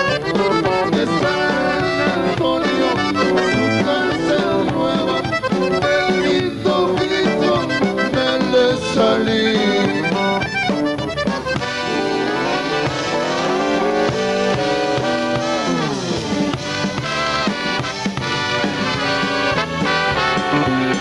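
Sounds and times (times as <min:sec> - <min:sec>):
accordion: 0:00.0 - 0:21.0
live band music: 0:00.0 - 0:21.0.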